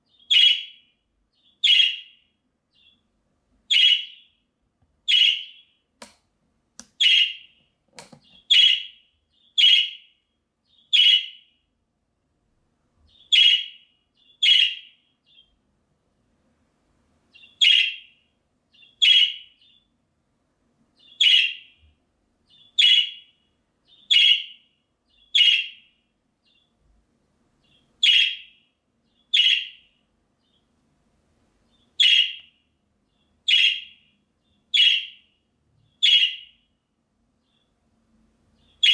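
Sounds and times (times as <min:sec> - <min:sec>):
budgerigar contact calls: 0:31.9 - 0:32.5.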